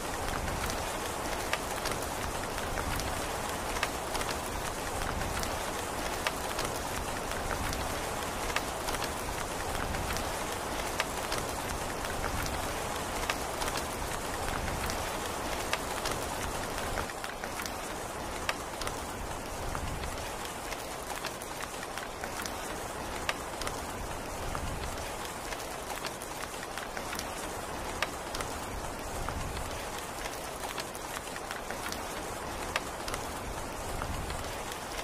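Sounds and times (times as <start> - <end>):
rain falling: 0.0 - 35.0.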